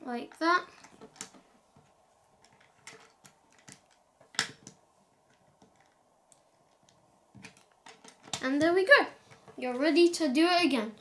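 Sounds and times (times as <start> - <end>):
plastic bricks clicking: 2.4 - 8.7.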